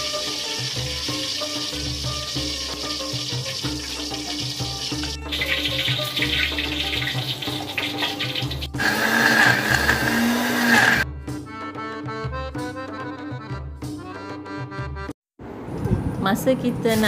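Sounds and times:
instrumental background music: 0.0s - 15.2s
electric blender grinding: 8.7s - 11.0s.

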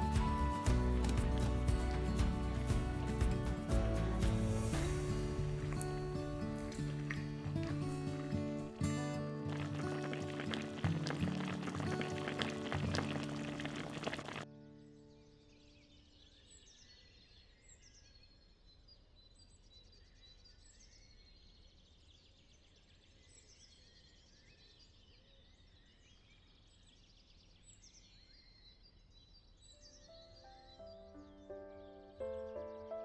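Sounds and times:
soft music notes: 0.0s - 15.6s
birds chirping: 0.0s - 19.4s.

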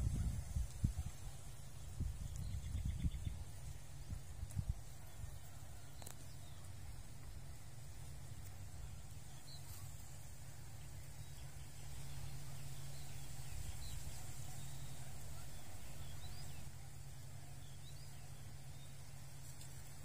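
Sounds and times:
steady low rumble: 0.0s - 20.0s
faint bird chirps: 8.4s - 19.9s.

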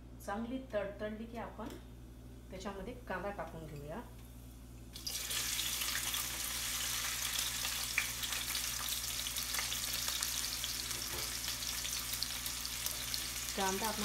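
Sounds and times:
onion sizzling in hot oil: 4.9s - 14.0s.

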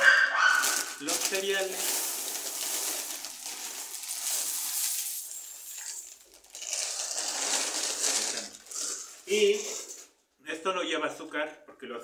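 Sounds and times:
plastic cereal bag rustling: 0.0s - 10.1s
cereal pouring into a bowl: 0.6s - 10.0s.

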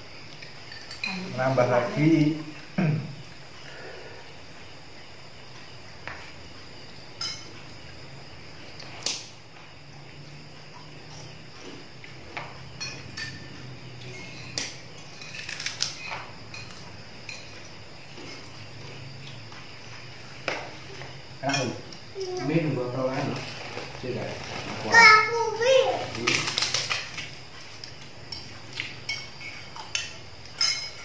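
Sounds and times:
spoons clinking on plates: 0.6s - 1.4s, 7.1s - 7.6s, 12.3s - 18.7s, 21.4s - 22.0s, 28.2s - 31.0s.

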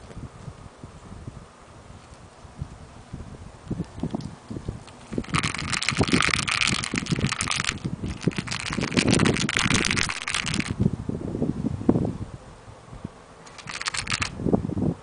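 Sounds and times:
harsh crackling rustle: 3.8s - 10.8s, 13.4s - 14.4s.

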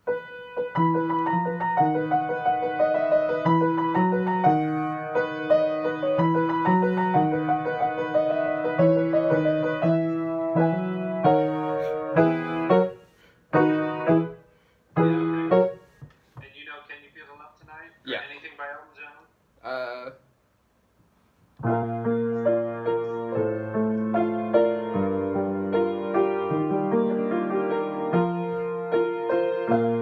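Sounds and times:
grand piano playing: 0.0s - 14.4s, 15.0s - 15.9s, 21.6s - 30.0s.

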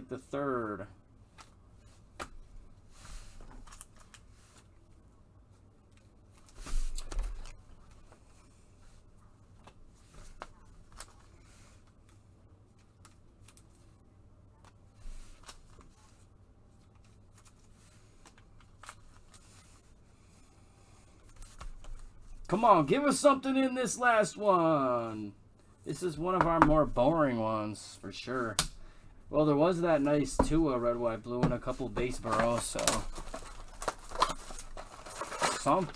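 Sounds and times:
cards and packaging rustling: 3.2s - 4.7s, 14.6s - 19.9s, 30.2s - 35.9s.

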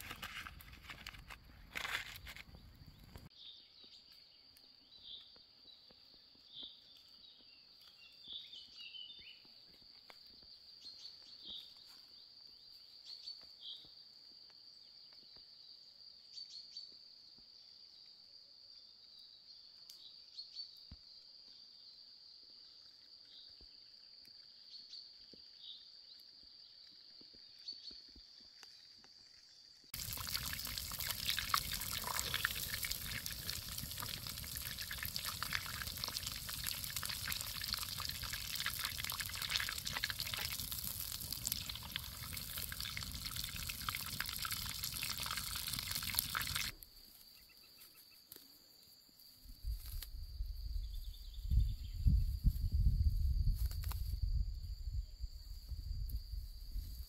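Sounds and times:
wood fire crackling and hissing: 0.0s - 3.3s, 29.9s - 46.8s
liquid bubbling in a pan: 29.9s - 46.7s.

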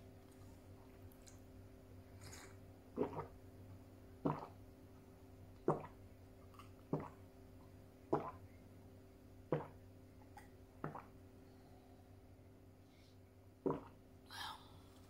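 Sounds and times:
person gulping water: 2.2s - 3.4s, 4.2s - 4.6s, 5.6s - 7.3s, 8.0s - 8.5s, 9.5s - 11.2s, 13.6s - 14.0s.

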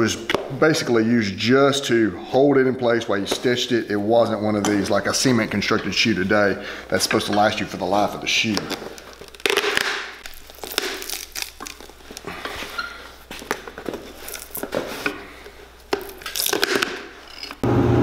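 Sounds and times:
leather sole creaking and tearing: 8.4s - 17.6s.

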